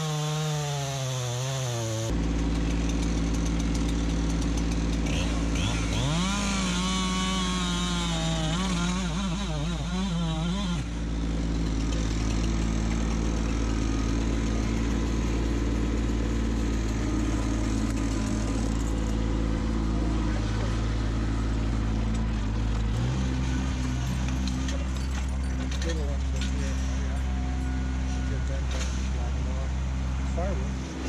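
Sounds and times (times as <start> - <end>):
chainsaw cutting log: 0.0 - 20.4
tractor diesel engine running: 2.0 - 31.0.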